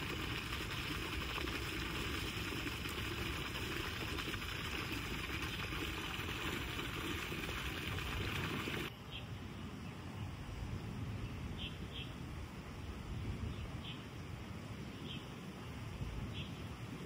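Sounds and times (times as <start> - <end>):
shallow water trickling over stones: 0.0 - 8.9.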